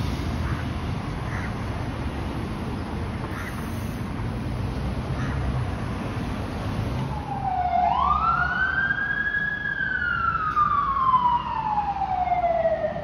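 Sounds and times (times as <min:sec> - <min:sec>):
emergency vehicle wail siren: 0:07.0 - 0:13.0.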